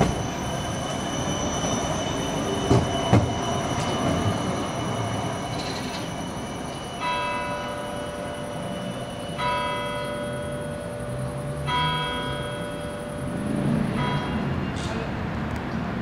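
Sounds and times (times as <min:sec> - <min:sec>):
large bell striking: 0:09.4 - 0:15.0.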